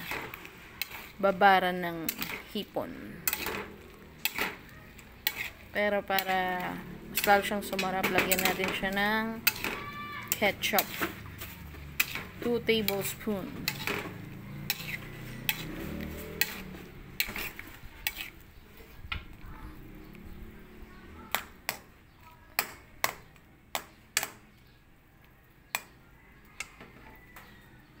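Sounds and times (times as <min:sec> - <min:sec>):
metal spatula scraping a wok: 0:00.0 - 0:19.0.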